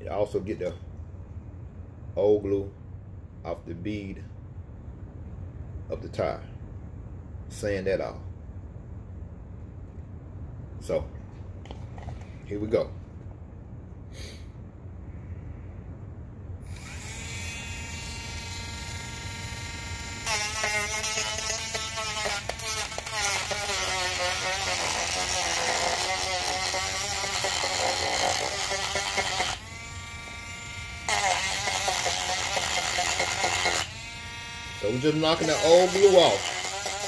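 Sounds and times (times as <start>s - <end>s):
rotary tool grinding: 16.7s - 37.0s.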